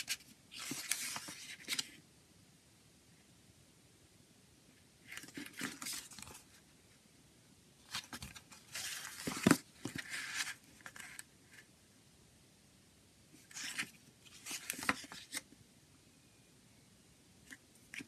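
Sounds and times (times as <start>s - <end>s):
paper pages rustling: 0.0s - 2.0s, 5.0s - 6.6s, 7.9s - 11.3s, 13.5s - 15.4s.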